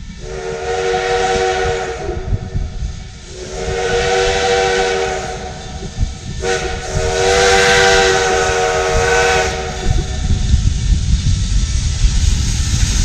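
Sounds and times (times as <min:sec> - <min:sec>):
steam locomotive chime whistle: 0:00.0 - 0:02.4, 0:03.3 - 0:10.3
low rumble: 0:00.0 - 0:13.0.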